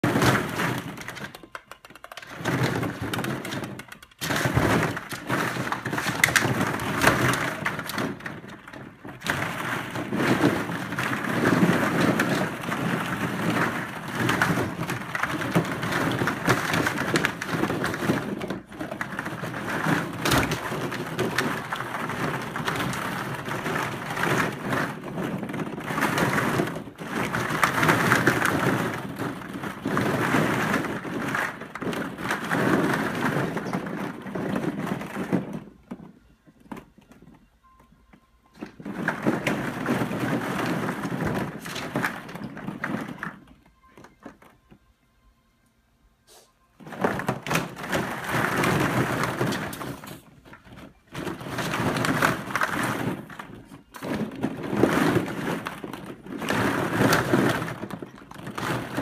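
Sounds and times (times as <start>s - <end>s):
plastic balls clattering: 0.0s - 44.9s, 46.8s - 59.0s.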